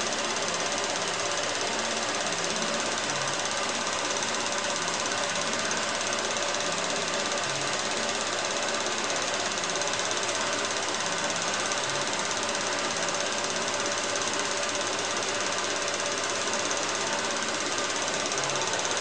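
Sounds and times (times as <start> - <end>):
film projector clattering: 0.0 - 19.0.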